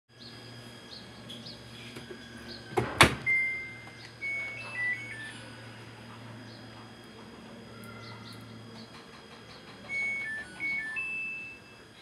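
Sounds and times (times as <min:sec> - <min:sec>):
washing machine door latching: 0:02.8 - 0:03.4
electronic beeps: 0:03.3 - 0:05.7, 0:09.8 - 0:11.8.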